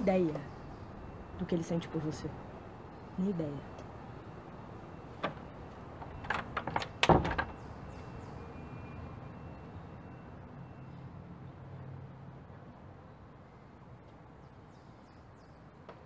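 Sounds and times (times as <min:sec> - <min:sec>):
door closing thud: 0:05.2 - 0:07.6
latch and handle clicks: 0:05.2 - 0:07.6.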